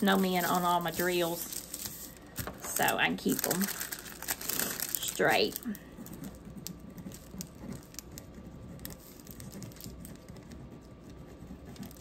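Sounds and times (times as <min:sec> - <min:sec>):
paper rustling: 0:00.1 - 0:10.6
marker scratching on paper: 0:06.4 - 0:12.0.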